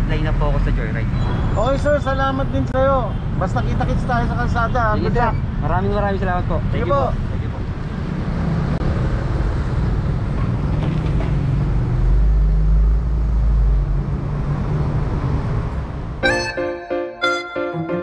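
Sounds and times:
tyre and road noise: 0:00.0 - 0:16.5
music: 0:16.2 - 0:18.0.

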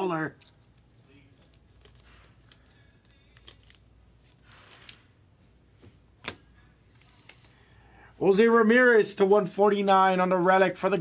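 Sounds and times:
cards sliding rustle: 0:00.3 - 0:05.1.

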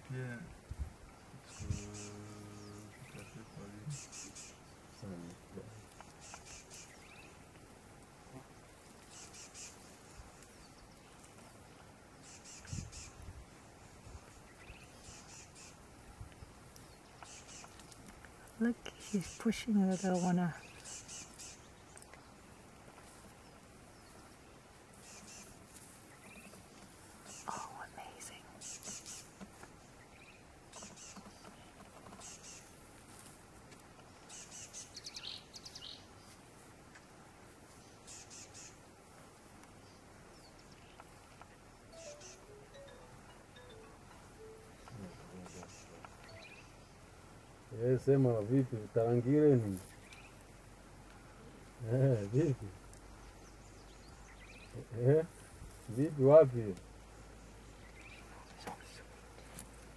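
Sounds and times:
birds chirping: 0:00.0 - 0:07.6, 0:08.2 - 0:32.9, 0:33.9 - 0:39.0, 0:39.7 - 0:59.9
lower falling bird call: 0:40.0 - 0:47.1
faint high chirps: 0:41.9 - 0:47.0.

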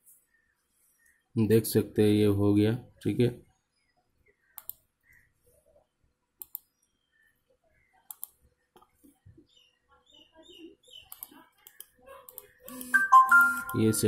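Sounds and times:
faint computer mouse clicks: 0:04.6 - 0:04.8, 0:06.4 - 0:06.7, 0:08.0 - 0:09.0, 0:11.1 - 0:12.9.

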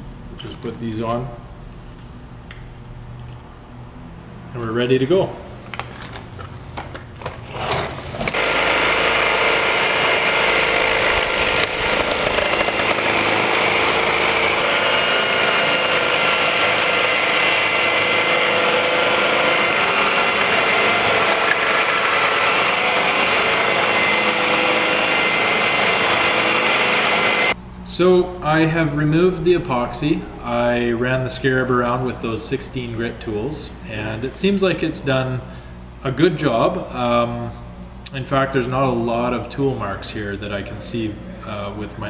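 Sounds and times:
concrete grinder grinding floor: 0:07.4 - 0:27.6.

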